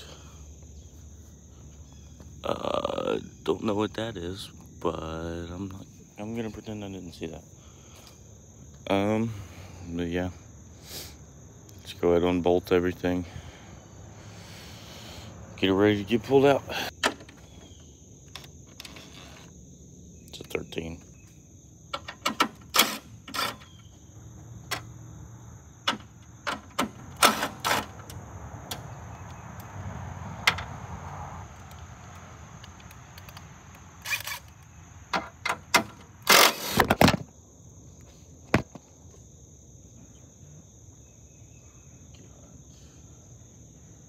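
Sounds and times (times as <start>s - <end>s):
crickets chirping: 0.0s - 44.0s
impact driver bursts: 36.2s - 37.0s.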